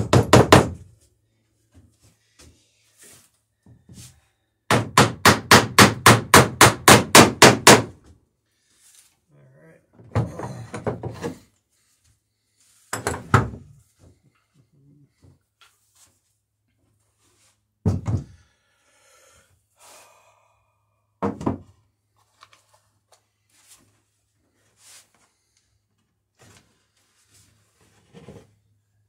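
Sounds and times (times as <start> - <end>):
heavy thunks on wood: 17.8 - 18.4, 21.2 - 21.7.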